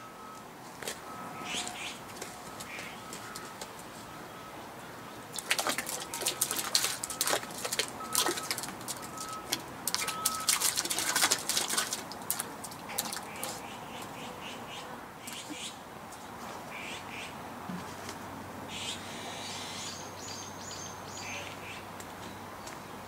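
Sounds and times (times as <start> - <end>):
water splashing and sloshing: 0.1 - 14.2.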